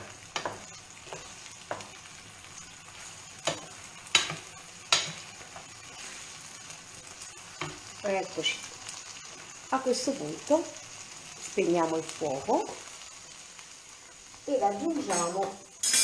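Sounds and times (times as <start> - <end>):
wooden spoon knocking on pan: 0.0 - 2.0, 3.4 - 5.2
food sizzling in a frying pan: 0.0 - 16.0.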